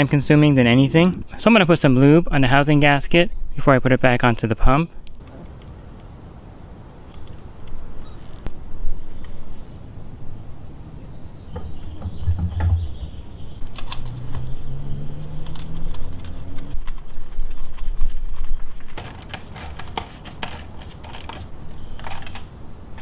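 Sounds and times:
knocks and scraping of handling: 11.6s - 23.0s.

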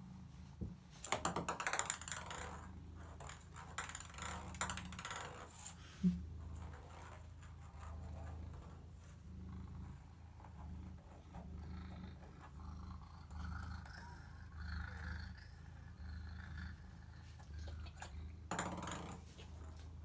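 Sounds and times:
ping pong ball clattering on bathtub: 1.0s - 5.7s, 17.6s - 19.9s
cat purring: 1.7s - 20.0s.

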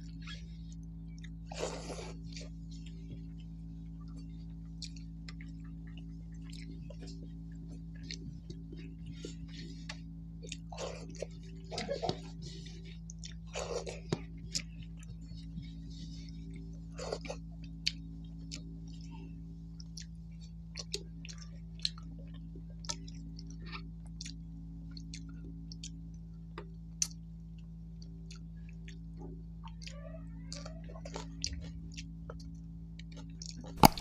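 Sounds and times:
close-up chewing: 0.0s - 34.0s
steady low hum: 0.0s - 34.0s
wet mouth clicks: 33.4s - 34.0s.

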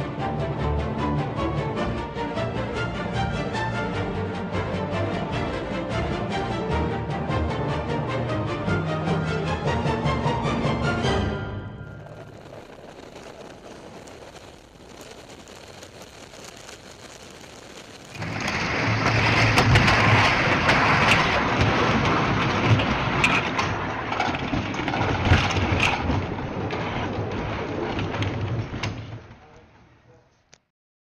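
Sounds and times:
roller coaster rattling on track: 10.9s - 15.2s, 18.1s - 29.7s
faint steady rush: 11.7s - 20.2s.

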